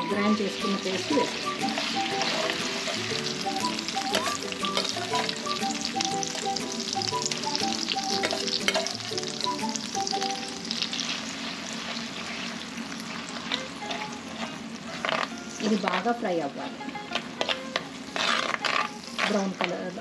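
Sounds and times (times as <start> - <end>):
onion paste sizzling in oil: 0.0 - 20.0
soft background music: 0.0 - 20.0
metal spoon stirring: 1.0 - 5.4, 7.8 - 9.4, 11.0 - 16.0, 16.9 - 19.7.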